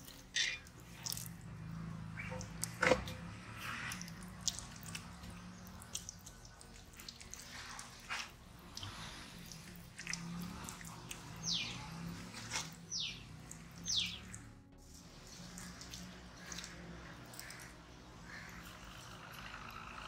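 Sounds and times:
hands squelching in marinade: 0.0s - 19.1s
bird whistling: 13.8s - 14.4s.

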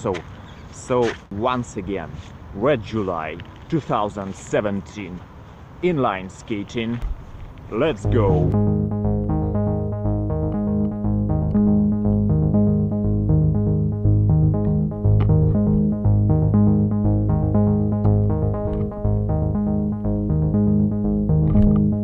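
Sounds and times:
electronic music with keyboard chords: 7.8s - 22.0s.

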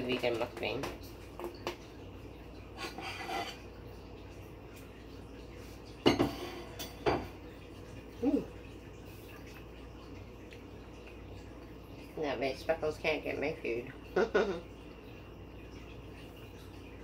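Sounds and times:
dishes clattering: 2.8s - 3.8s, 6.0s - 7.4s.

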